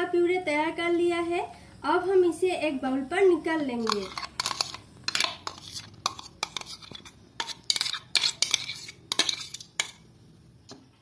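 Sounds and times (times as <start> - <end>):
metal spoon scraping and clinking: 3.8 - 10.0.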